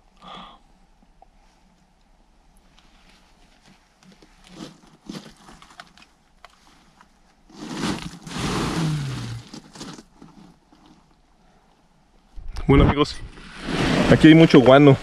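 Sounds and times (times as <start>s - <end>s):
clothing and gear rustling: 2.6s - 11.6s
scuffs and scrapes of movement: 2.7s - 11.1s.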